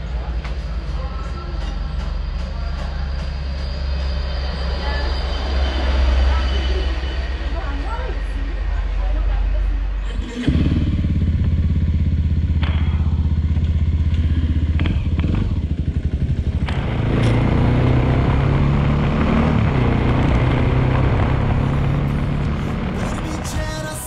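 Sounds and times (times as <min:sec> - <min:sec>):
motorcycle engine idling: 0:10.4 - 0:24.0
motorcycle pulling away: 0:10.4 - 0:24.0.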